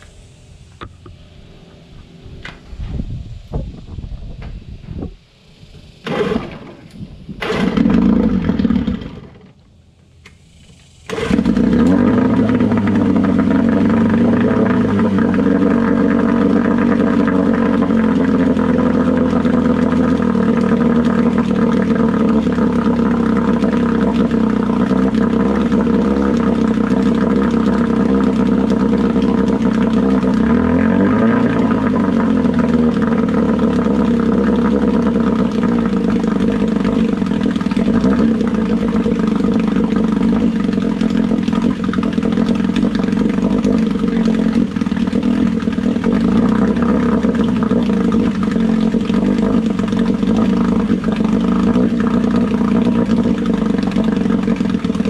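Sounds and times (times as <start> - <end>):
outboard motor running: 0.0 - 55.0
propeller churning water: 0.0 - 55.0.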